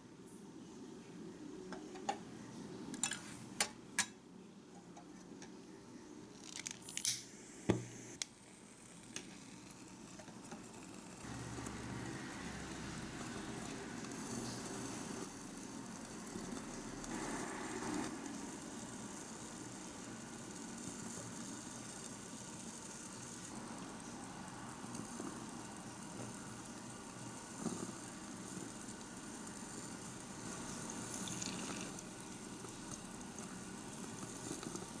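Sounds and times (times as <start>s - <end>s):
oil pouring into pot: 30.4s - 33.2s.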